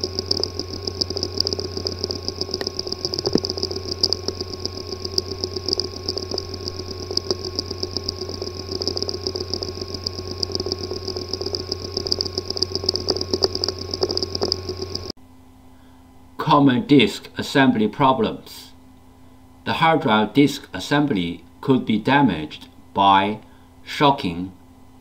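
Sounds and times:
hard drive clicking: 0.0 - 15.1
hard drive hum and whine: 0.0 - 25.0.

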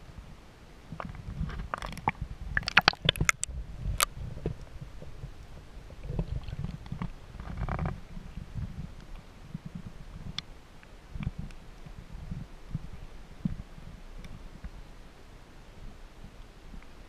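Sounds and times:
muffled underwater rumble: 1.0 - 10.4
water splashing against camera: 1.5 - 4.1
sharp splashes and clicks: 1.6 - 3.5.

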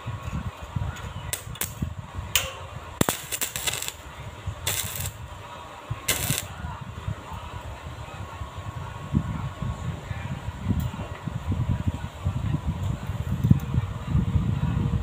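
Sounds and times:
arc welder crackling: 0.0 - 6.6.

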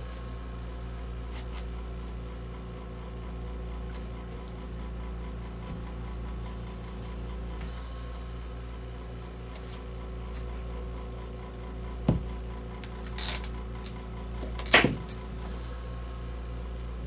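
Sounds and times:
steady low hum: 0.0 - 17.0
knife scraping: 1.3 - 1.7.

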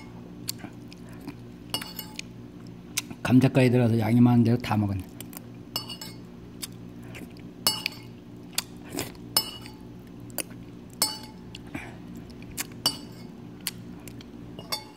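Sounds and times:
spoon clinking on ceramic bowl: 1.7 - 2.2, 5.7 - 6.2, 7.6 - 8.1, 9.4 - 9.8, 11.0 - 11.4, 12.8 - 13.3, 14.6 - 14.9.

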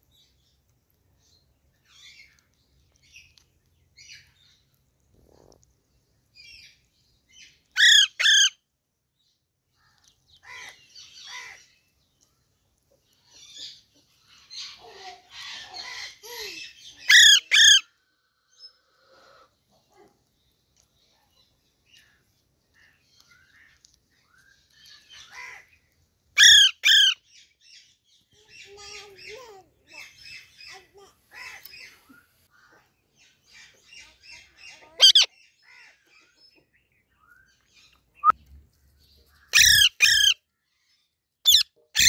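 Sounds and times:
parakeet screeches: 7.8 - 8.5, 17.1 - 17.8, 26.4 - 27.2, 35.0 - 35.3, 39.5 - 40.4, 41.5 - 42.0
soft chattering bird calls: 18.7 - 42.0
faint bird chirps: 26.4 - 42.0.

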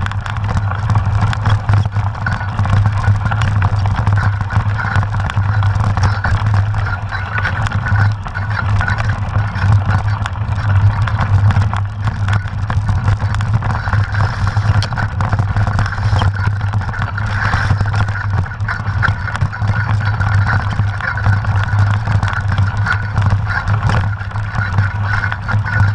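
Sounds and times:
bike rattling: 0.0 - 25.9
tyres rolling over dirt: 0.0 - 25.9
wind on microphone: 0.0 - 25.9.

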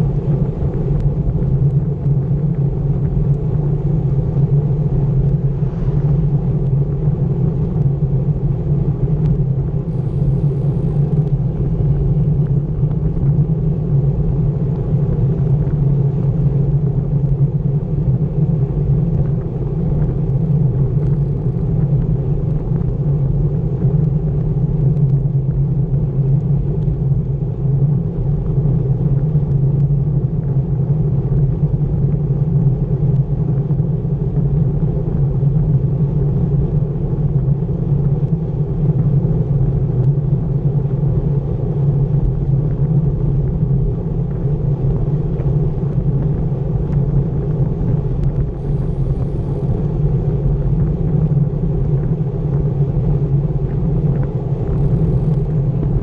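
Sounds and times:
road rumble from bicycle: 0.0 - 56.0
wind rush: 0.0 - 56.0.

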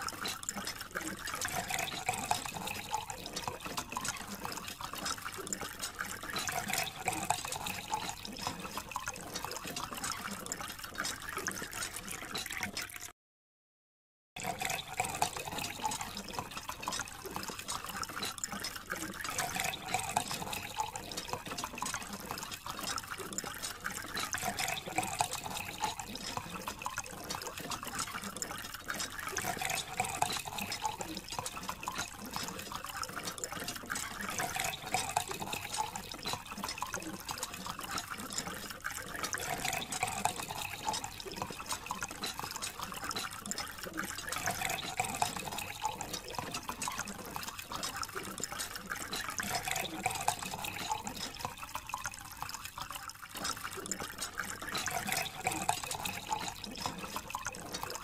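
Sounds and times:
water splashing on toys: 0.0 - 13.1, 14.4 - 58.0.

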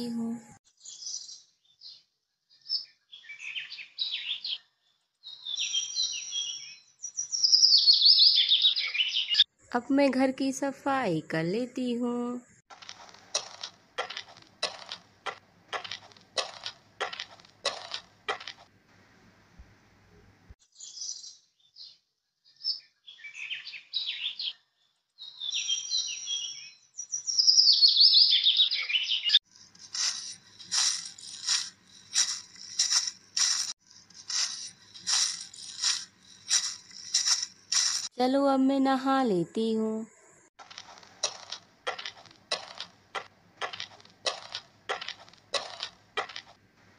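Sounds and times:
broom sweeping scratchy strokes: 29.7 - 38.1.

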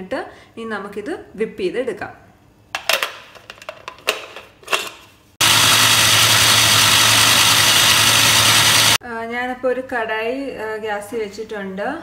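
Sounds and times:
mixer grinder motor running: 5.4 - 9.0.

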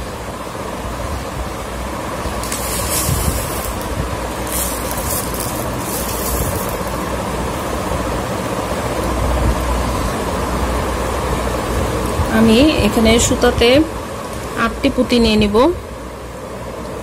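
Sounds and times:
background rumble and hiss: 0.0 - 17.0
brief hissy bursts: 2.4 - 3.8.

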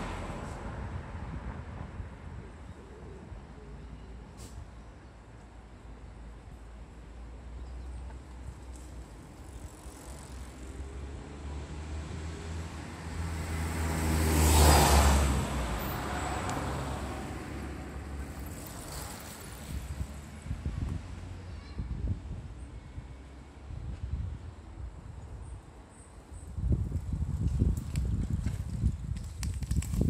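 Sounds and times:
car driving past: 10.0 - 19.8.

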